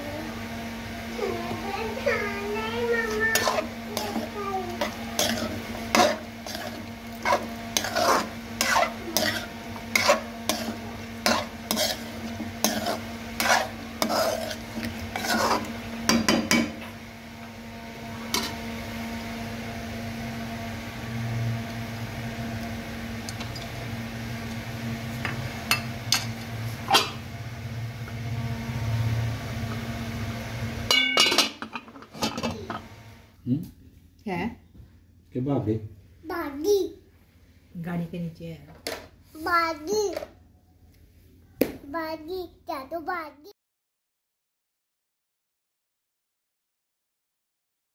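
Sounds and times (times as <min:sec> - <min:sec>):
steady low hum: 0:00.0 - 0:38.7
metal spoon scraping a pot: 0:03.0 - 0:16.3, 0:18.3 - 0:18.6.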